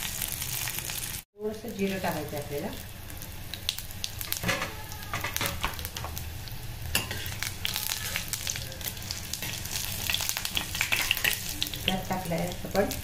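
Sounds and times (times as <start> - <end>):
spices frying in hot oil: 0.0 - 13.0
steel spoon scraping pan: 6.9 - 8.4, 9.4 - 11.8.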